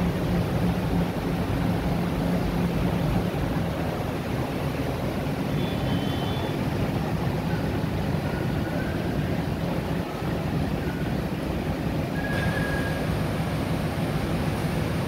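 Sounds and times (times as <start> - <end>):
ferry engine rumble: 0.0 - 15.0
faint short high whistle: 5.6 - 6.5, 12.2 - 13.1.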